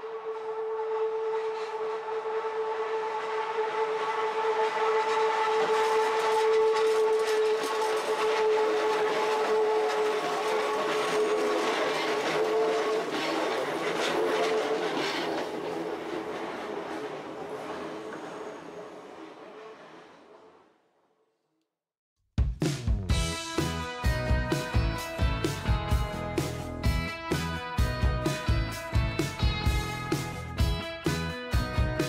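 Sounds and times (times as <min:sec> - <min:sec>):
electric train whining: 0:00.0 - 0:21.0, 0:23.3 - 0:32.0
wheels clicking on rails: 0:00.9 - 0:20.6.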